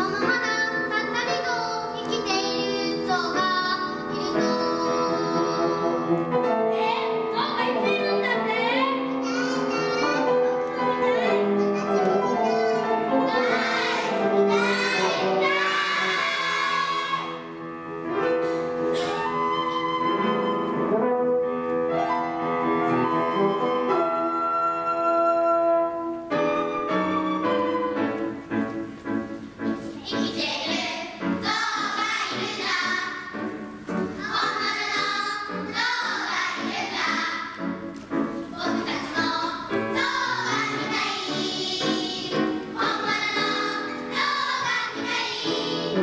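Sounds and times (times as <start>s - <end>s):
piano and instrumental accompaniment: 0.0s - 46.0s
choir singing: 13.1s - 17.5s, 30.3s - 33.3s, 34.2s - 37.5s, 38.5s - 46.0s.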